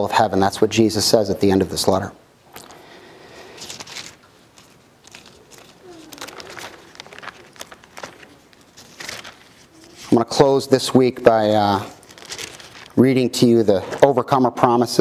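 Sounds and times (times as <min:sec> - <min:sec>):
thin pages turning: 0:03.4 - 0:14.3.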